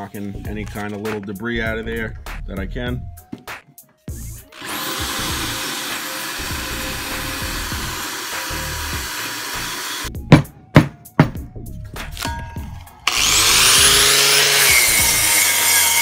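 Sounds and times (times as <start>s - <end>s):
electric drill with wire brush: 4.5s - 10.1s, 13.0s - 16.0s.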